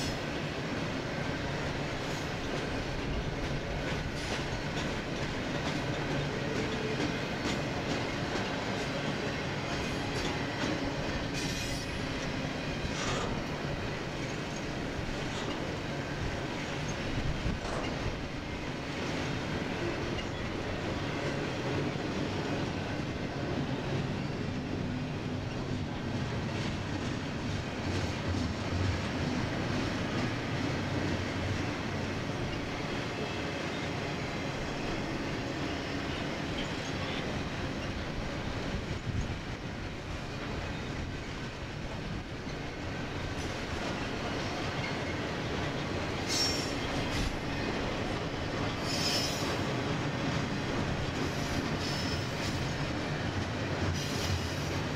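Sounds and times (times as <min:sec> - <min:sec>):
train rumbling on rails: 0:00.0 - 0:54.9
train wheel clicks: 0:02.0 - 0:09.0, 0:09.7 - 0:13.6.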